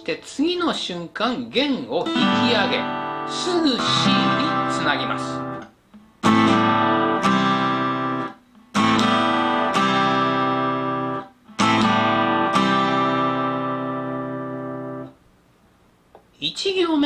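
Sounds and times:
acoustic guitar strumming: 0.0 - 15.2.

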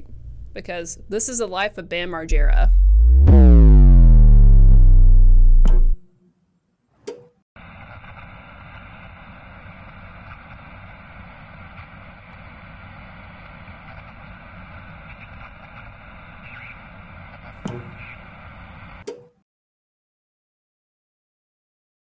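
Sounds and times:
analog static hiss: 2.3 - 6.0, 7.6 - 19.0
click: 5.6 - 5.9.

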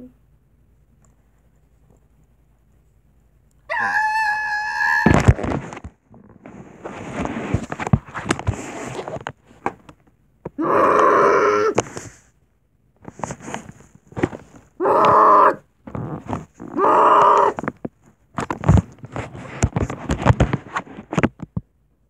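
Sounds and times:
child crying ahh: 3.7 - 5.2, 10.6 - 11.8
plush toys thumping and rustling: 5.0 - 10.6, 13.0 - 21.6.

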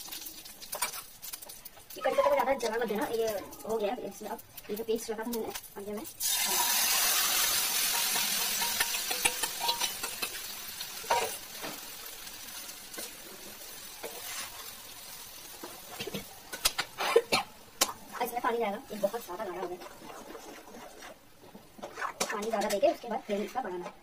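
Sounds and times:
paste sizzling in hot oil: 0.0 - 2.0, 2.6 - 22.2
metal spatula scraping pan: 6.5 - 11.8, 14.0 - 14.8, 18.2 - 24.0.

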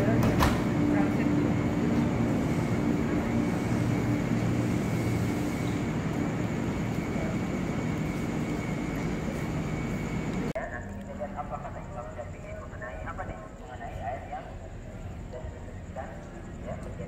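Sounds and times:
electric train pulling away: 0.0 - 10.5.

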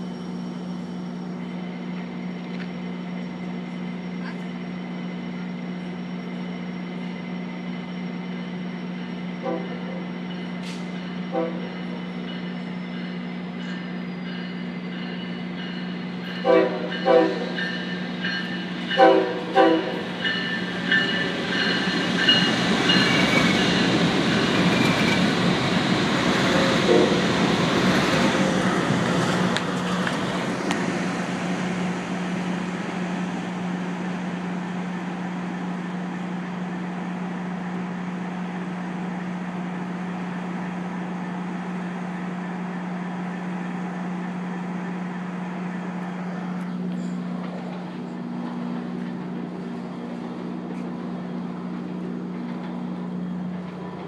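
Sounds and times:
train rumbling past: 0.0 - 54.0
high ringing: 10.0 - 25.3.

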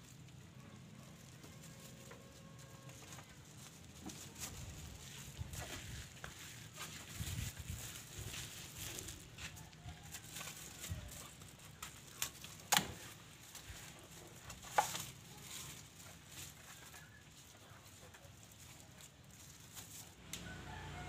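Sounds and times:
plastic snapping: 12.2 - 13.0.

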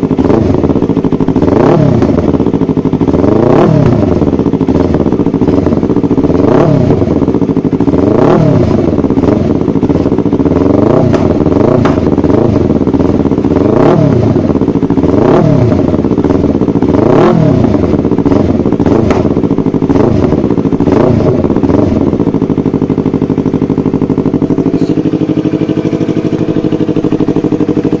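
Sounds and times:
motorcycle engine idling: 0.0 - 28.0
motorcycle engine revving: 0.0 - 28.0
exhaust pops: 18.8 - 19.6.

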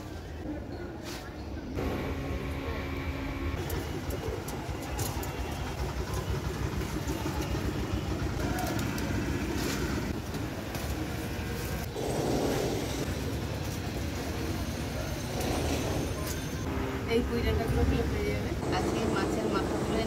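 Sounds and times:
low outdoor rumble: 1.8 - 14.9.

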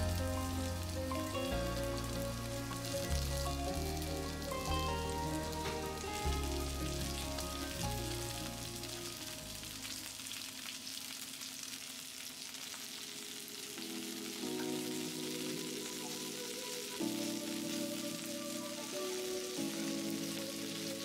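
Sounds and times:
background music: 0.0 - 10.2, 13.3 - 21.0
shrimp sizzling in a frying pan: 0.0 - 21.0.

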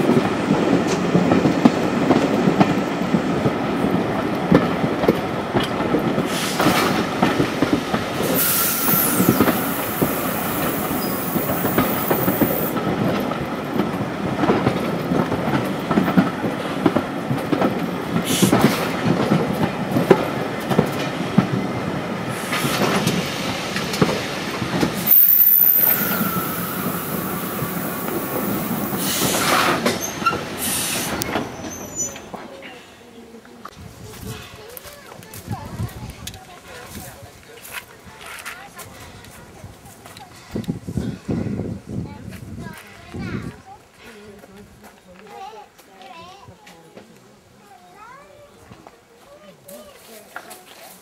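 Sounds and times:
wheels clattering on jointed track: 4.5 - 21.6
high-pitched wheel squeal: 8.4 - 12.7, 25.1 - 29.0.

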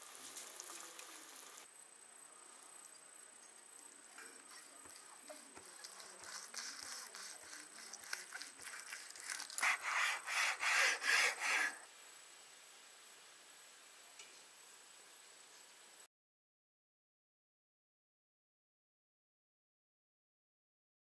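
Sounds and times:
knife sawing through roast skin: 4.9 - 11.8.

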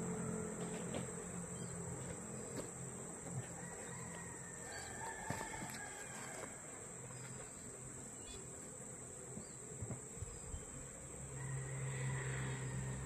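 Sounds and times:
high-pitched insect drone: 9.4 - 13.0.

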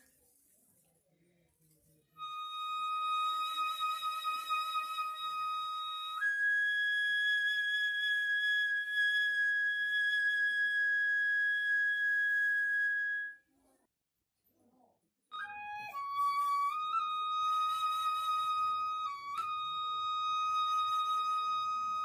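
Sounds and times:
flute playing held notes: 2.2 - 13.4, 15.3 - 22.0.

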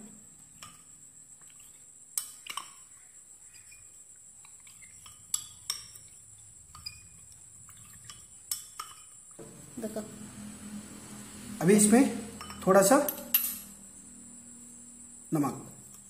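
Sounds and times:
soft stirring: 0.6 - 9.8
spoon clinking against glass bowl: 12.4 - 13.6.

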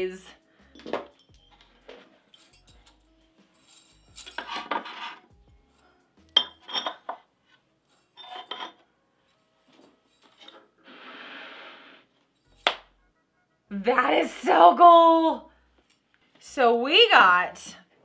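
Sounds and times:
decor pieces clinking on wooden tray: 0.8 - 3.0, 3.6 - 5.2, 6.4 - 7.2, 7.9 - 8.8.

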